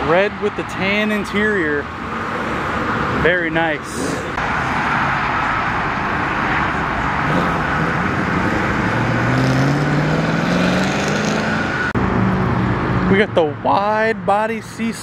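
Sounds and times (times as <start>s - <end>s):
road traffic noise: 0.0s - 15.0s
car engine accelerating: 5.9s - 13.2s.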